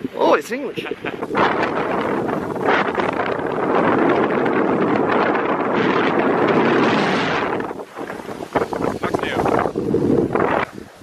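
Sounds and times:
wind rushing over microphone: 0.0 - 11.0
skis scraping on snow: 6.1 - 11.0.

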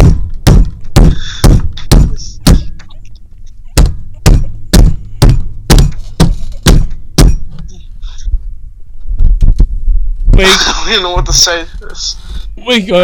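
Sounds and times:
hands pounding a surface: 0.0 - 2.8, 3.8 - 7.5.

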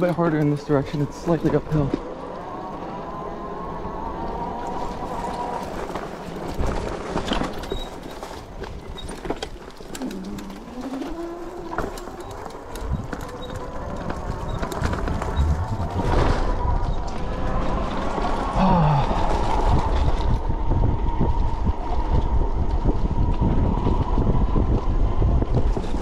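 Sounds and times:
electric hub motor whining: 0.0 - 26.0
tires clattering over rocks: 4.7 - 20.2.

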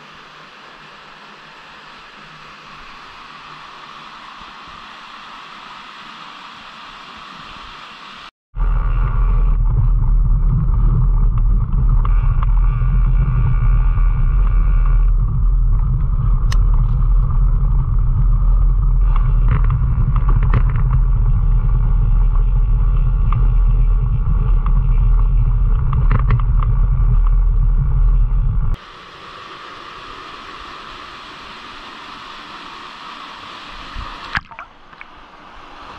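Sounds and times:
wind buffeting camera: 8.6 - 28.8
bike clicks and rattles: 18.8 - 28.5.

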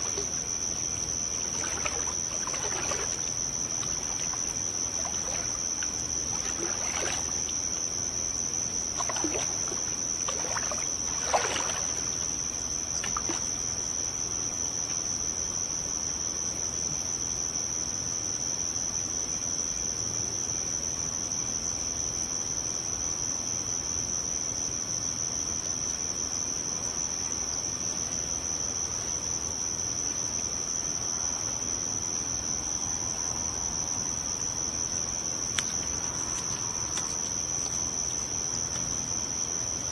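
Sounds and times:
water sloshing and splashing: 0.0 - 13.8, 35.0 - 39.9
high-pitched insect drone: 0.0 - 14.3.

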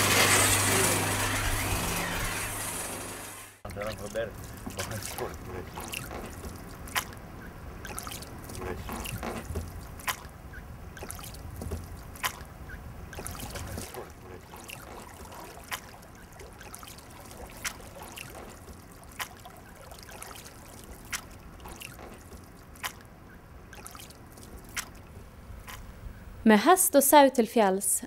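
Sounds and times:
water trickling off oar blades: 3.7 - 25.9
oars knocking: 8.0 - 19.4.

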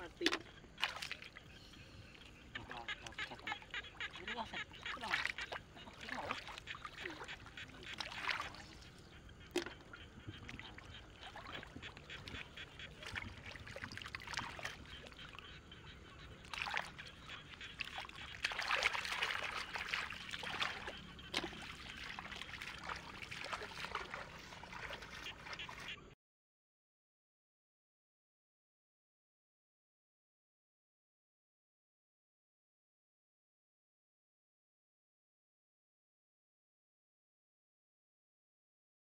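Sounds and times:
hands squelching in wet mud: 0.0 - 1.6, 2.2 - 8.9, 10.4 - 15.3, 16.4 - 25.9.

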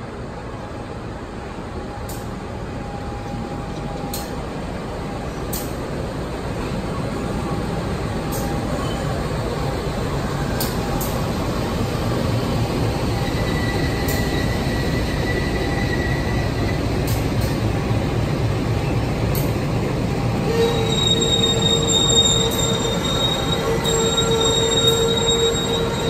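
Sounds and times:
train rumbling: 0.0 - 26.0
high-pitched wheel squeal: 13.1 - 17.0, 20.4 - 26.0.

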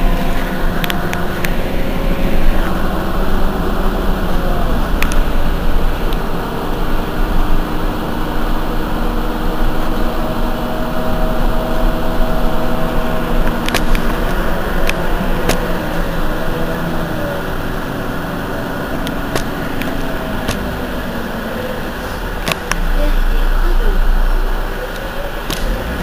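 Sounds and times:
bus engine idling: 0.0 - 26.0.

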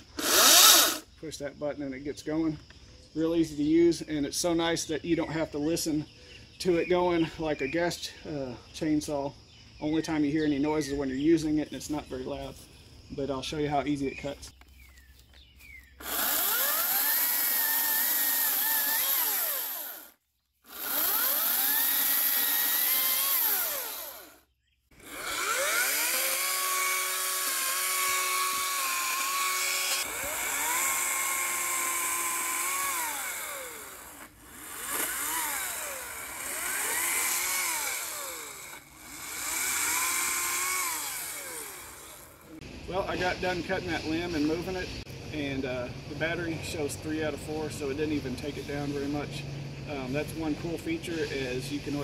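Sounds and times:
cordless chainsaw cutting a limb: 0.0 - 1.0, 16.0 - 24.4, 25.0 - 42.6.

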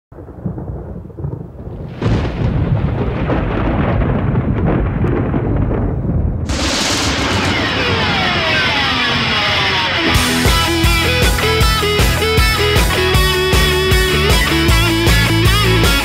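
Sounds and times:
loud thunder crash: 0.2 - 11.2
thunder rumble: 0.2 - 11.2.

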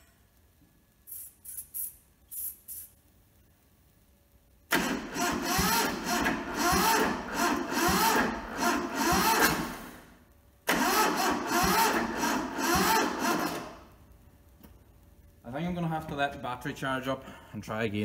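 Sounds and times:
diesel engine cranking on starter: 4.7 - 13.9.

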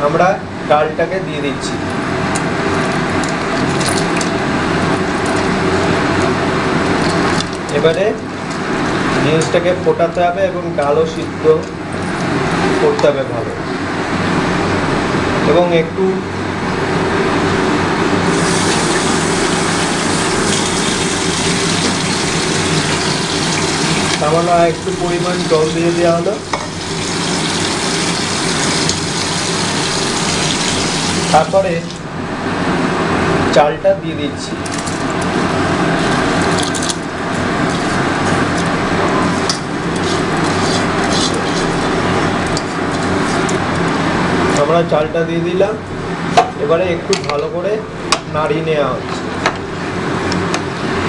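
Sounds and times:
water pouring into a pot: 18.3 - 31.5.

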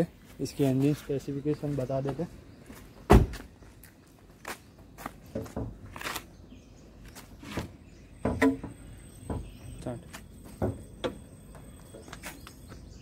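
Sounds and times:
footsteps: 0.1 - 6.3.

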